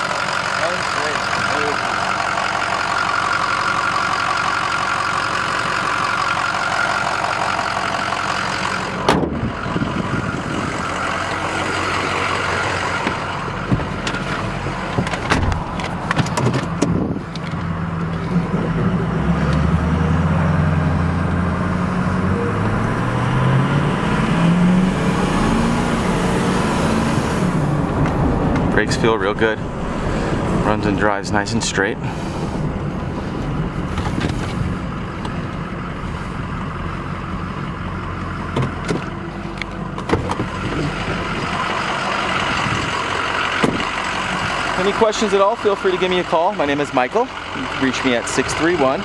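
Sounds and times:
diesel engine idling: 0.0s - 49.0s
truck accelerating through gears: 0.0s - 49.0s
clicks and thumps: 13.0s - 17.7s.

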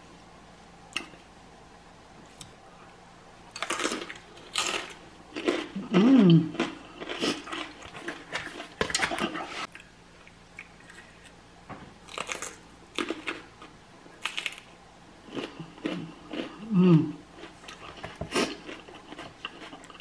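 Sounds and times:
crunching and chewing: 3.5s - 11.4s, 12.0s - 16.7s, 17.3s - 20.0s
person humming: 5.8s - 6.5s, 16.6s - 17.2s.

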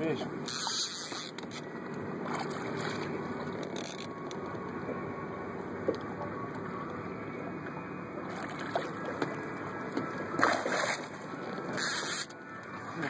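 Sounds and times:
steady background rush: 0.0s - 13.0s
fish thrashing and splashing water: 1.6s - 4.0s, 8.3s - 12.2s.

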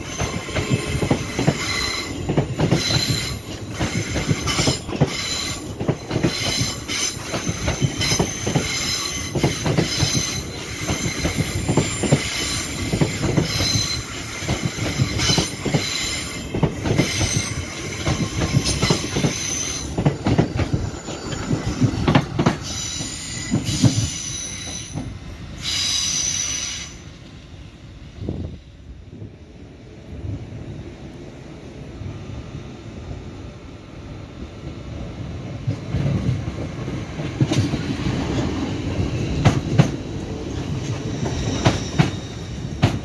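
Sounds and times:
train wheels knocking over rail joints: 0.2s - 25.2s, 35.7s - 43.0s
flange squeal: 6.4s - 27.1s, 41.0s - 42.8s.

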